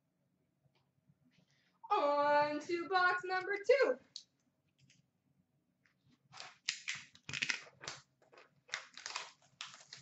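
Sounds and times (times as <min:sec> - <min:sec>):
plastic wrapping crinkling and tearing: 0:06.3 - 0:10.0.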